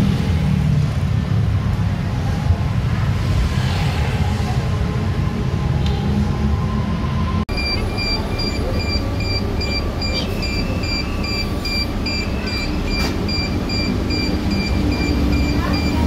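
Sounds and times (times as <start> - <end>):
low vehicle rumble: 0.0 - 16.0
door warning beeper: 7.5 - 16.0.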